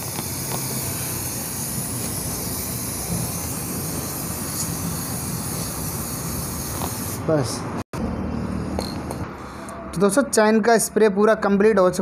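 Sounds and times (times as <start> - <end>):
aerosol spray hissing: 0.0 - 7.2.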